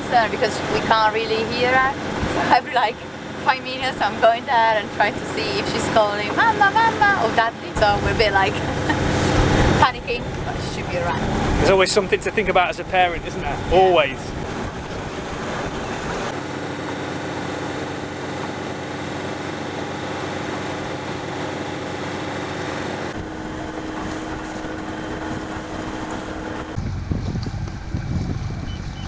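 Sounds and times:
boat engine humming: 0.0s - 29.0s
wind on microphone: 13.1s - 16.4s, 23.1s - 29.0s.

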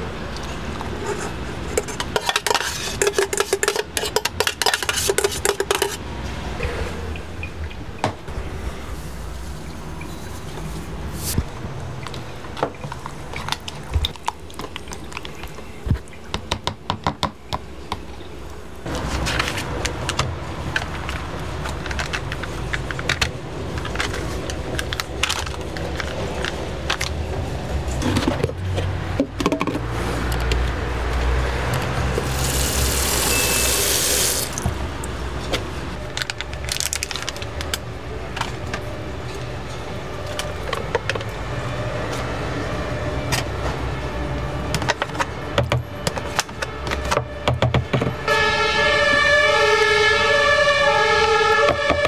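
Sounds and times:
street traffic rumble: 0.0s - 52.0s
plastic tubs clicking and knocking: 1.8s - 6.0s, 28.1s - 30.6s
two-tone emergency siren: 48.2s - 52.0s.

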